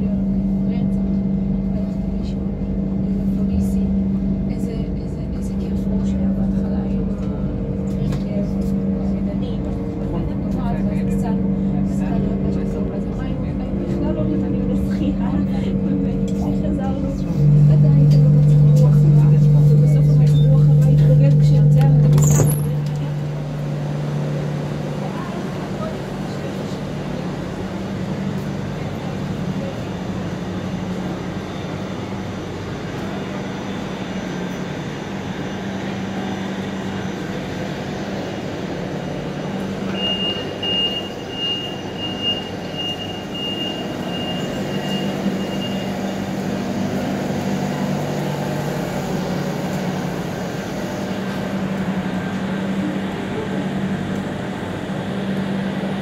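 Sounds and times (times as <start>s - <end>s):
electric train hum: 0.0s - 56.0s
high beeps: 39.9s - 46.1s.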